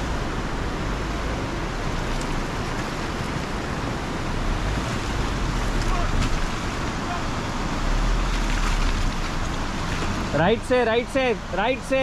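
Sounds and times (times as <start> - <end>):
constant rushing hiss: 0.0 - 12.0
off-road vehicle rumbling: 0.0 - 12.0.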